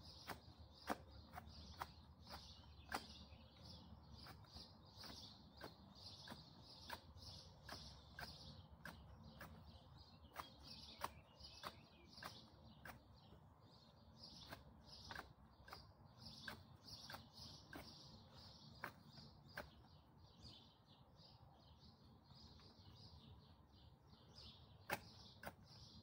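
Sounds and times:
pruning shears snipping: 0.0 - 13.5, 14.2 - 19.9, 24.8 - 26.0.

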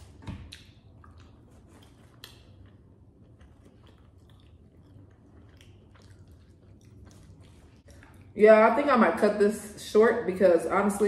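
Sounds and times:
person chewing food: 0.0 - 8.4.

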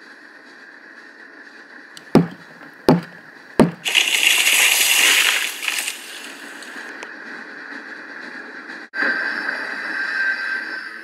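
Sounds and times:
axe chopping wood: 2.2 - 4.2
tree falling crash: 2.2 - 6.8.

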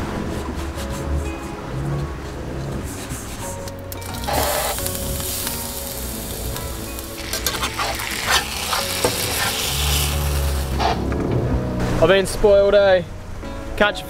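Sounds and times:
metal spatula scraping pan: 4.0 - 6.0, 7.0 - 11.0
fish fillet sizzling in oil: 4.0 - 11.0.

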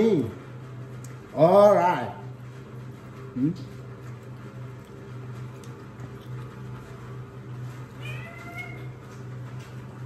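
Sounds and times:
steady low hum: 0.0 - 10.0
cat meowing: 8.0 - 9.0.

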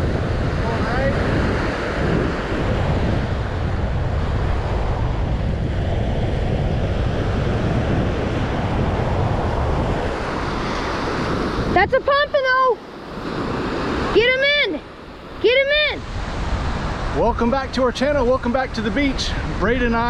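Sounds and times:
waves washing onto beach: 0.0 - 20.0
wind buffeting microphone: 0.0 - 20.0.

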